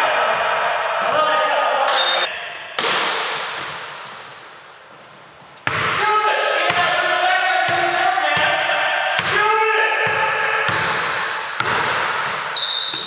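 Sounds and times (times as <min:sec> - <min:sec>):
basketball bouncing on hardwood: 0:11.6 - 0:13.0.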